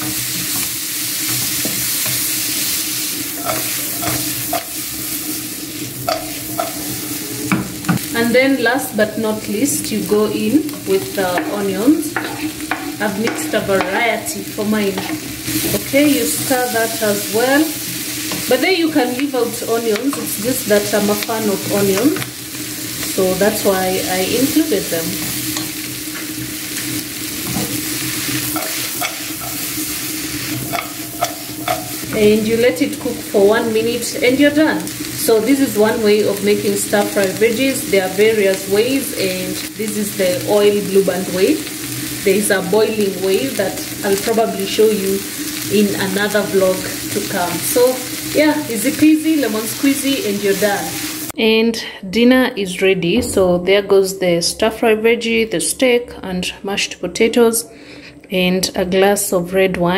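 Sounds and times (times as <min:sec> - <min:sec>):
wooden spoon knocking wok: 0:00.0 - 0:02.4, 0:07.5 - 0:08.1, 0:10.7 - 0:16.5, 0:30.4 - 0:33.2
vegetables sizzling in a wok: 0:00.0 - 0:51.4
spatula tapping and scraping pan: 0:03.4 - 0:04.8, 0:06.0 - 0:06.9, 0:10.7 - 0:14.0, 0:28.5 - 0:29.7, 0:30.6 - 0:32.4
low hum: 0:53.0 - 0:54.0.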